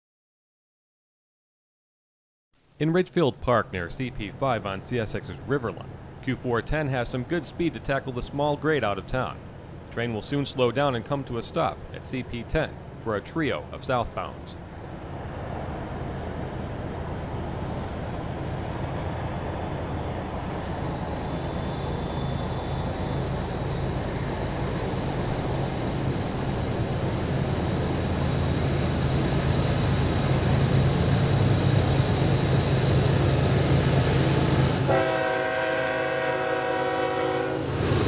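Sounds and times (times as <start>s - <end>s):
diesel locomotive engines growling: 3.2s - 38.0s
thin high whine: 15.9s - 38.0s.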